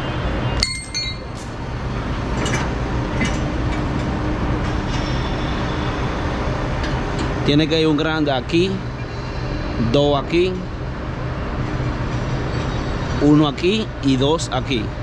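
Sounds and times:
low mechanical rumble: 0.0s - 15.0s
metallic clinks: 0.6s - 1.5s.

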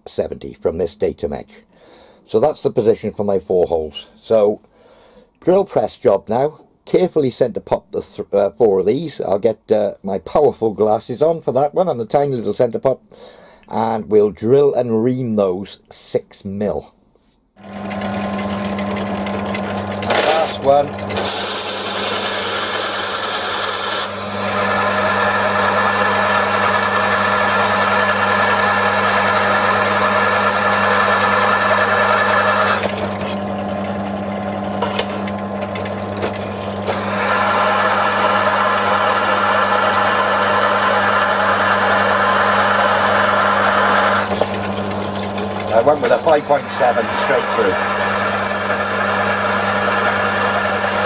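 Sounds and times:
drill cutting through metal: 17.6s - 33.4s, 36.2s - 51.0s
drill press motor hum: 17.6s - 51.0s.

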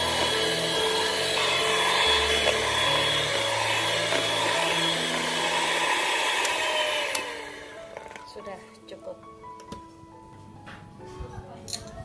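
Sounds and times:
electric mixer running: 0.0s - 8.4s.

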